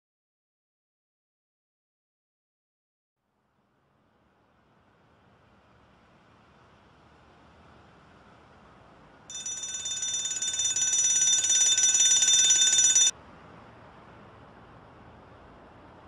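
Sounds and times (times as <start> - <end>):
alarm clock ringing: 9.3 - 13.1.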